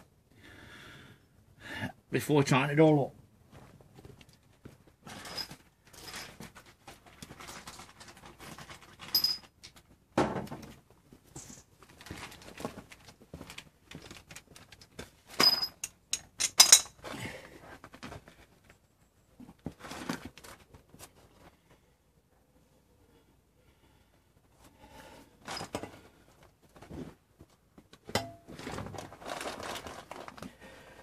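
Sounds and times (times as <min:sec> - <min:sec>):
metal tools clinking: 0:05.1 - 0:06.4, 0:09.0 - 0:09.5, 0:15.4 - 0:17.0.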